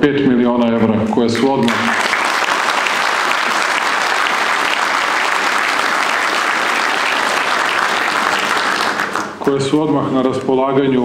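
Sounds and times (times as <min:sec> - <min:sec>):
audience applauding: 0:01.4 - 0:09.6.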